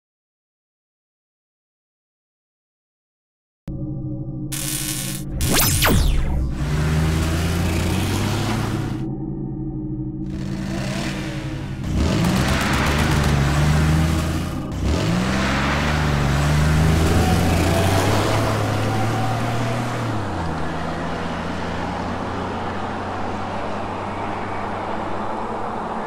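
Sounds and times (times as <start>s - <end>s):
monster truck engines revving: 6.4s - 9.0s, 10.3s - 26.0s.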